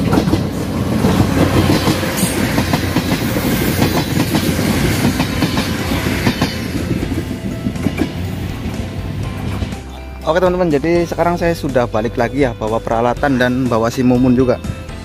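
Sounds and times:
wheels clicking over rail joints: 0.0s - 9.8s
passenger train passing: 0.0s - 15.0s.

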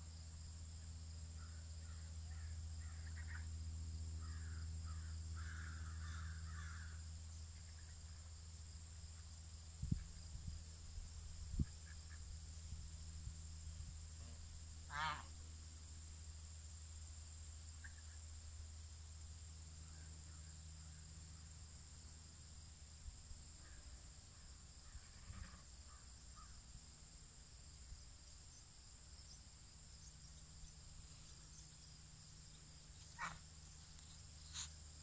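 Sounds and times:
crickets droning: 0.0s - 35.0s
distant bird calls: 1.4s - 3.5s, 33.0s - 33.4s.

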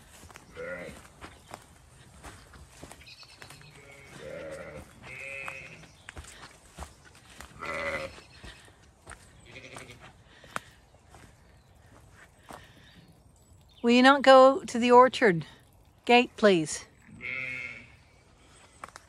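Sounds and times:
footsteps on ground: 0.0s - 13.0s, 18.4s - 19.0s
ewe and lambs bleating: 0.4s - 1.1s, 3.1s - 6.0s, 7.3s - 10.1s, 17.0s - 18.2s.

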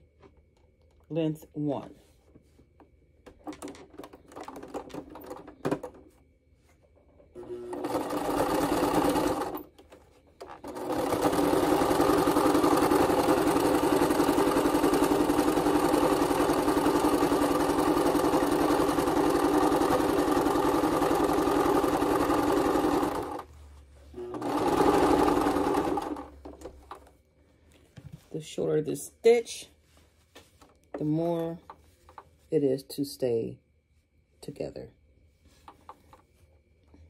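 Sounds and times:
sewing machine stitching: 7.4s - 9.7s, 10.4s - 23.5s, 24.2s - 26.3s.

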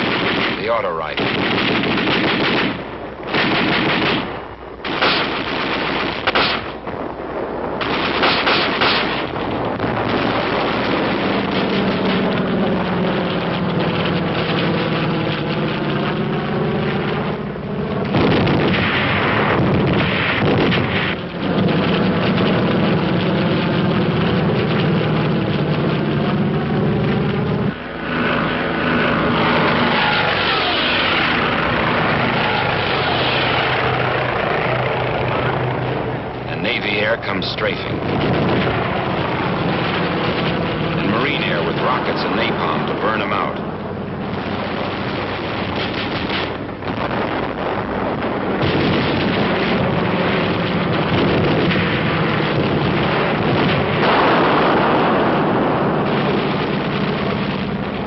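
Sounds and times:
automatic gunfire: 0.0s - 6.8s, 7.8s - 12.3s, 48.6s - 57.3s
propeller plane flying past: 0.0s - 58.0s.

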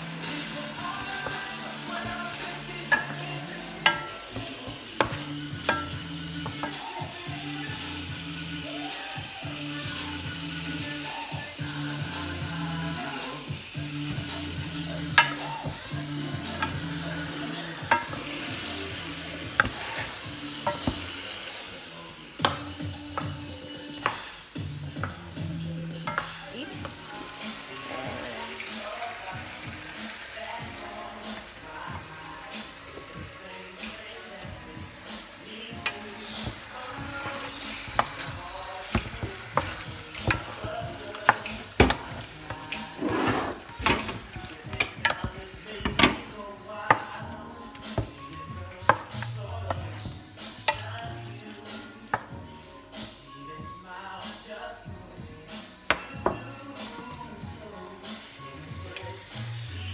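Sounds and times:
food sizzling in a pan: 0.0s - 59.9s
spoon knocking against pan: 2.0s - 6.9s, 15.1s - 15.7s, 19.5s - 21.1s, 26.0s - 27.0s
wooden spoon knocking on pot: 3.8s - 6.7s, 26.0s - 27.0s, 37.9s - 42.6s, 43.7s - 46.3s, 55.9s - 56.5s.

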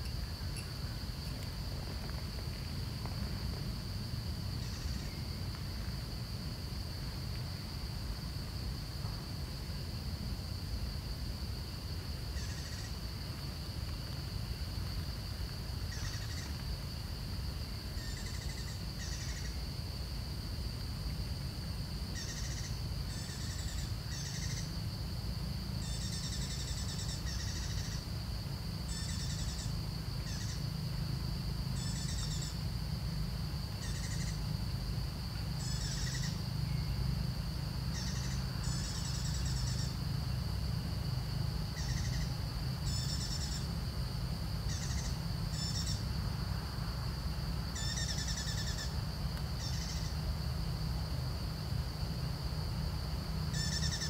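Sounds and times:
bird chirping: 53.6s - 54.0s.

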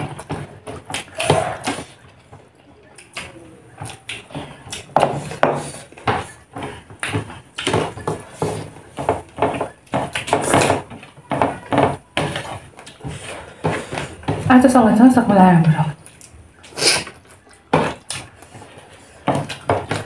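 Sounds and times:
fingers working food on plates: 0.0s - 14.7s, 16.2s - 20.0s
chewing and mouth smacks: 2.8s - 5.4s, 16.0s - 20.0s.

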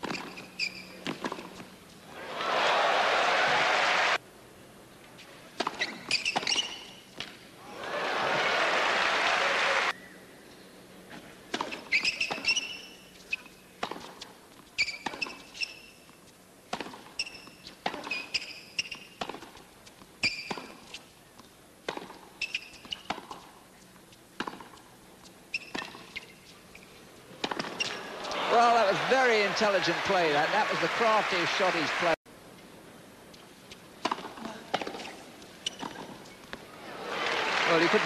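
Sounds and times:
racket striking tennis ball: 0.0s - 1.7s, 5.6s - 7.4s, 11.5s - 21.0s, 21.8s - 23.6s, 24.4s - 24.9s, 25.6s - 26.4s, 27.4s - 29.1s, 34.0s - 36.6s
sneakers squeaking on court: 0.0s - 2.0s, 5.6s - 7.2s, 11.6s - 21.0s, 21.9s - 24.9s, 25.5s - 28.4s, 33.3s - 36.6s
crowd noise: 2.1s - 4.2s, 7.6s - 10.0s, 27.4s - 32.2s, 36.4s - 38.0s.

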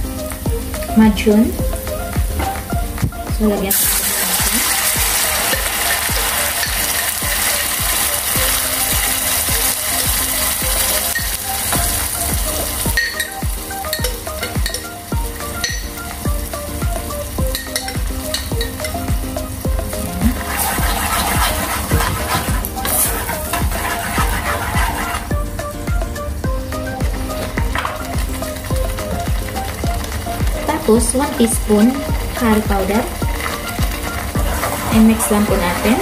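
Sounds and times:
paste sizzling in hot oil: 3.6s - 25.6s, 26.3s - 36.0s
metal spoon stirring pan: 3.7s - 16.0s, 17.5s - 19.0s, 19.9s - 25.3s, 30.6s - 36.0s.

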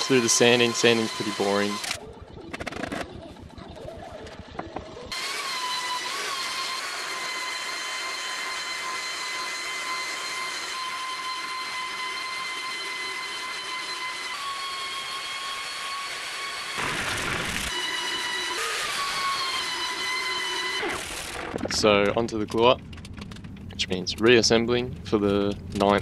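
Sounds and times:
belt sander whining on wood: 0.0s - 2.0s, 5.1s - 22.0s.

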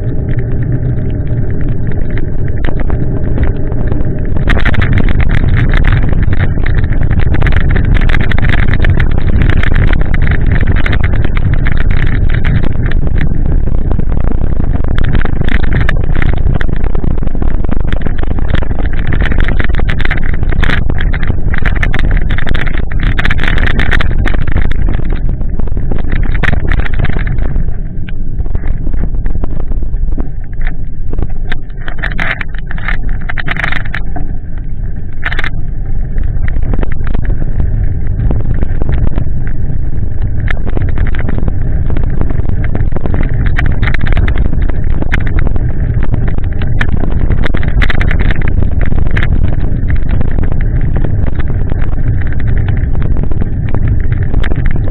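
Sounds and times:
camera mount rumble and vibration: 0.0s - 54.9s
sharp clicks: 35.1s - 54.9s.

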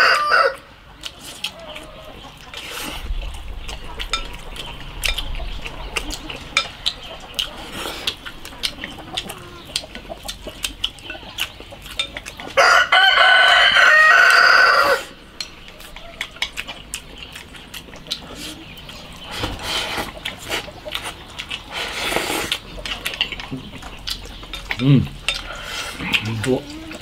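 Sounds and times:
rooster crowing: 0.0s - 0.7s, 12.6s - 15.2s
chewing and slurping: 0.6s - 27.0s
chopsticks clicking on bowls: 20.2s - 27.0s.

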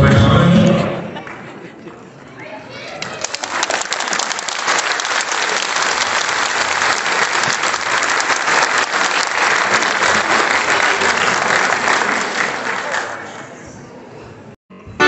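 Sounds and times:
audience applauding: 2.9s - 13.6s.

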